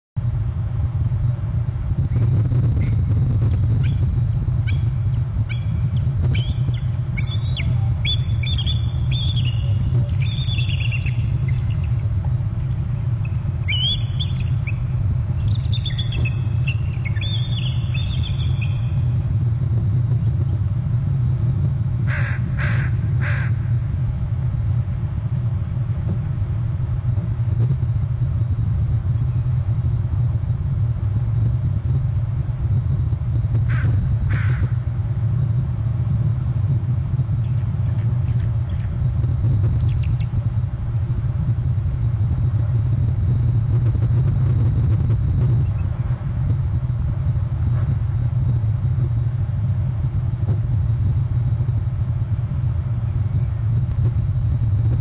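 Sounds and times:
low rumble: 0:00.2 - 0:55.0
eagle calling: 0:03.7 - 0:12.1, 0:13.2 - 0:19.0, 0:22.1 - 0:23.8, 0:33.7 - 0:34.8.

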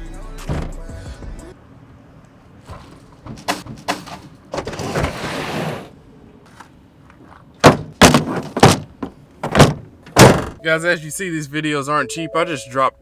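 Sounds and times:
box scraping on plastic bed liner: 0:04.6 - 0:05.9.

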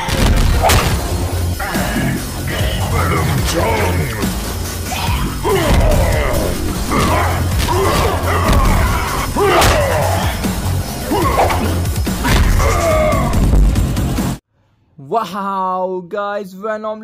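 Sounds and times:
dramatic music with bass beat: 0:00.0 - 0:14.4
voice-like growls and cries: 0:01.6 - 0:13.5.

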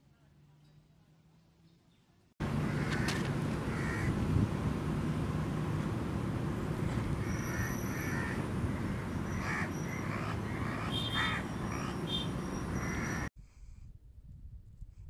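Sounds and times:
birds harsh calls: 0:02.4 - 0:04.6, 0:06.6 - 0:13.3.

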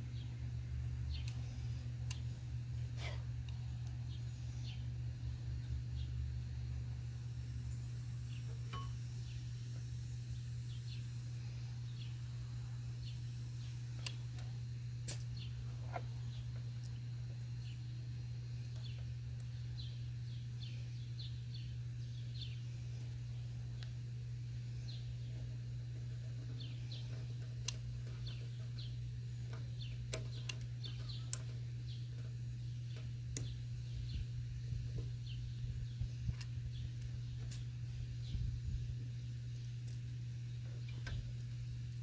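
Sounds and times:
birds chirping: 0:00.0 - 0:42.0
steady low hum: 0:00.0 - 0:42.0
sharp clicks of handling pliers: 0:29.5 - 0:31.6.

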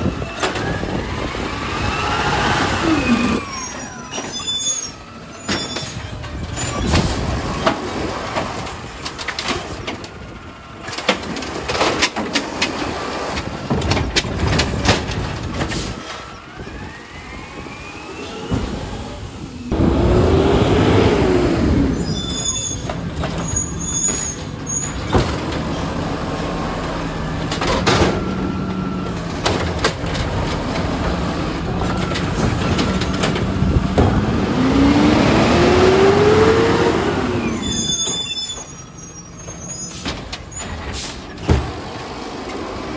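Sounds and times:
garbage truck engine running: 0:00.0 - 0:42.9
clanks and knocks: 0:10.8 - 0:16.0, 0:29.2 - 0:34.3
loud hydraulic whine: 0:15.7 - 0:25.1.

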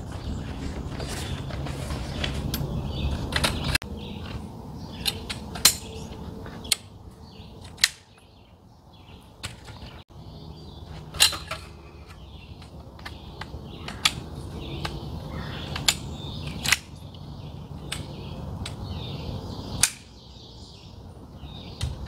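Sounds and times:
metal tent poles clinking: 0:00.7 - 0:08.4, 0:10.8 - 0:15.0.

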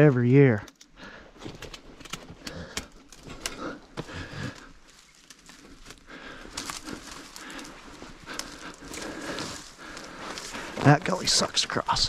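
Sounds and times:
brush crackling and snapping: 0:00.6 - 0:11.6
footsteps in undergrowth: 0:03.0 - 0:11.8.

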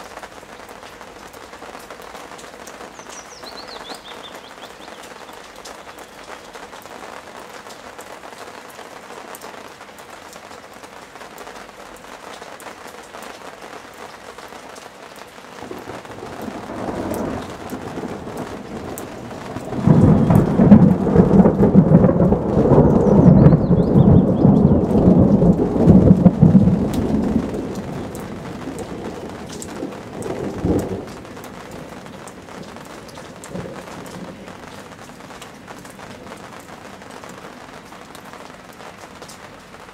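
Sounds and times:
steady rain: 0:00.0 - 0:39.9
thunder crack: 0:15.6 - 0:31.5
thunder rumbling: 0:15.6 - 0:36.3.

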